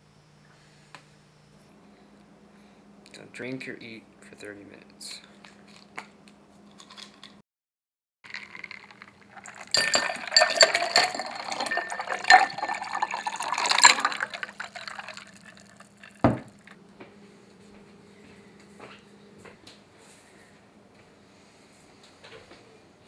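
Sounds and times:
ice cubes clinking against glass: 8.3 - 16.6
water pouring over ice: 8.3 - 16.7.

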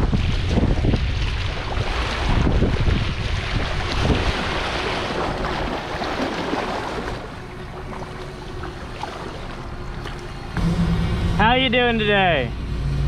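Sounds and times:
wind buffeting microphone: 0.0 - 11.6
river water rushing: 3.6 - 10.6.

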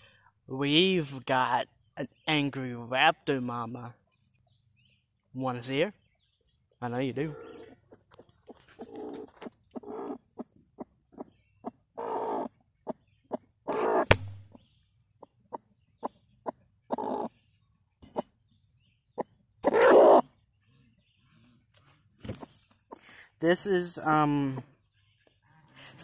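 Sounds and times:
hen clucking: 7.2 - 14.2, 15.2 - 18.4, 19.2 - 20.4
hen harsh calls: 13.6 - 14.1
sharp tap: 14.1 - 14.5.

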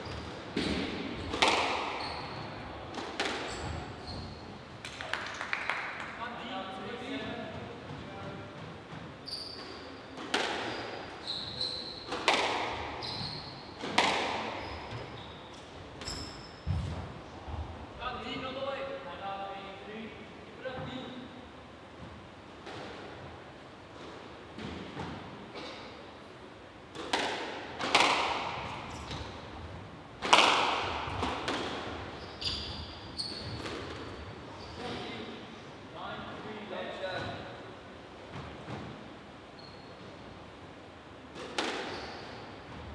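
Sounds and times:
squash ball struck echoing: 0.5 - 2.0, 2.9 - 3.5, 10.2 - 10.7, 12.1 - 13.0, 13.8 - 14.6, 26.9 - 29.4, 30.2 - 32.1
shoes squeaking on wooden floor: 1.9 - 2.6, 3.4 - 4.6, 9.1 - 12.2, 12.9 - 16.8, 32.0 - 35.2.

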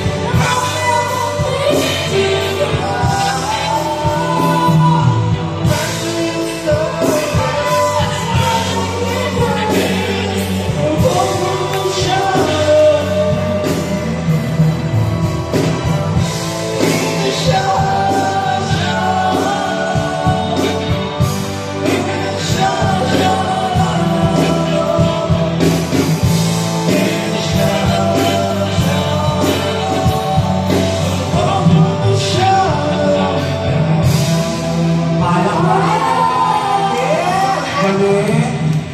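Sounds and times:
man singing into microphone: 0.0 - 15.1, 16.2 - 38.9
live band playing amplified music: 0.0 - 38.9
woman singing into microphone: 0.3 - 13.9.

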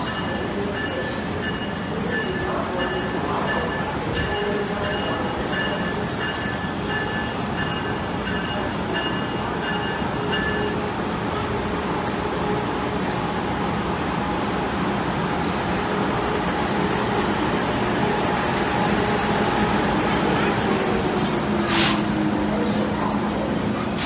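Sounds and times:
train bell ringing: 0.0 - 11.4
train rumbling: 0.0 - 24.0.

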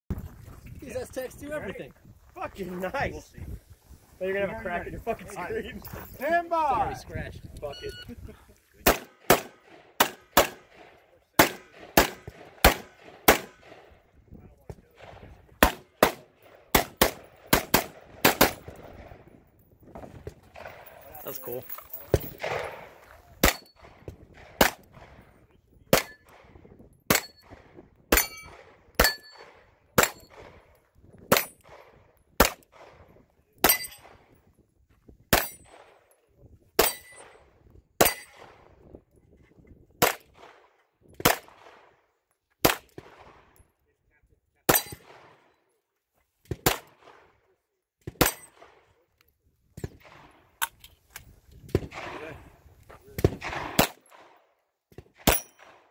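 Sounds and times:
pistol shots: 8.8 - 13.9, 14.9 - 19.2, 22.2 - 25.2, 25.9 - 26.5, 27.1 - 30.7, 31.3 - 34.2, 40.0 - 42.0, 42.6 - 43.5, 44.7 - 45.5, 46.5 - 47.3, 48.0 - 48.9, 53.2 - 55.9
steel targets clanging: 28.2 - 30.3, 33.6 - 34.0.

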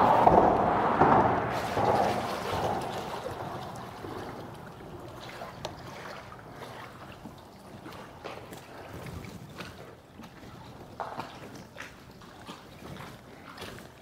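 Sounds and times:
wind noise: 0.0 - 6.1
waves lapping against boat hull: 0.0 - 14.0
small splashes and ticks: 1.5 - 14.0.

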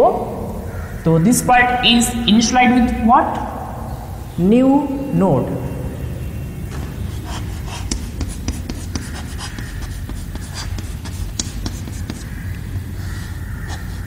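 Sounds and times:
chalk scratching on chalkboard: 7.0 - 14.0.

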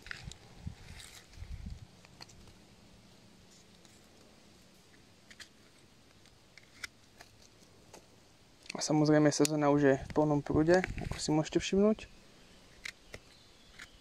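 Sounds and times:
handling rustle: 0.0 - 2.7, 3.4 - 11.4.

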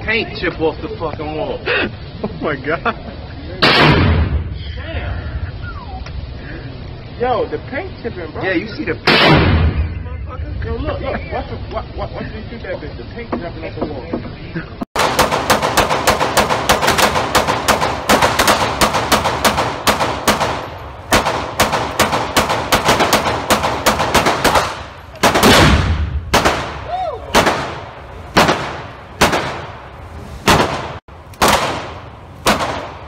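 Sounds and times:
heavy gunshot with deep boom: 3.6 - 4.6, 9.1 - 10.0, 15.0 - 29.8, 30.4 - 33.0.

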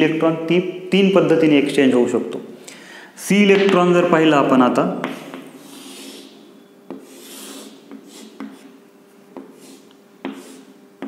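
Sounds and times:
chalk scraping on blackboard: 5.0 - 10.8
chalk tapping on board: 5.0 - 11.0.

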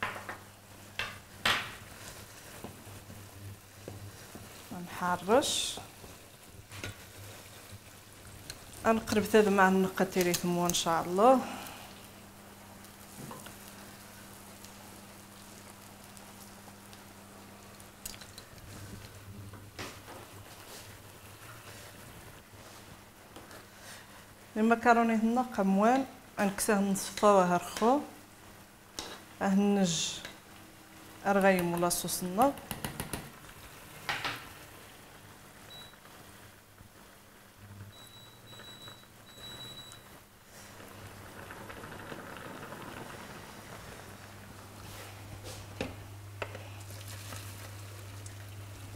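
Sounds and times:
food sizzling in frying pan: 0.0 - 32.4, 33.3 - 48.9
chicken sizzling on griddle: 12.0 - 24.4.

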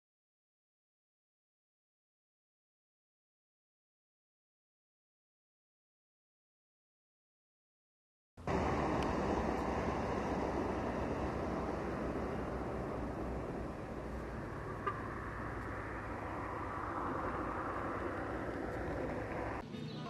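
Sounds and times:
low rumble: 8.4 - 19.6
rushing hiss: 8.5 - 14.7.

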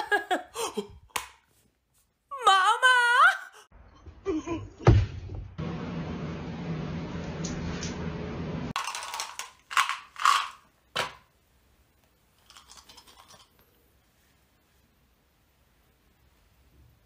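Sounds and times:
small hard objects rattling in hands: 8.8 - 10.7, 12.4 - 13.5.

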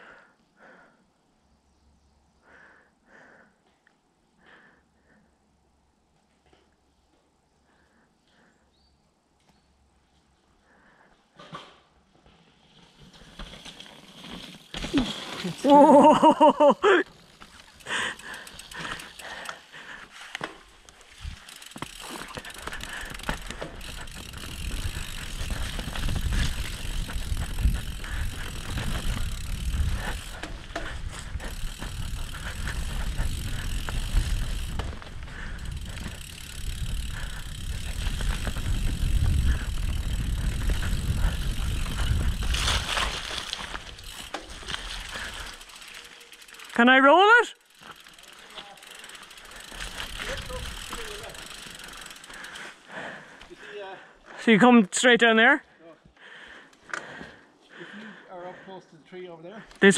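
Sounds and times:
bike tyres rumbling over roots: 12.0 - 46.9, 47.6 - 53.7
bike chain and frame rattling: 12.6 - 53.6.

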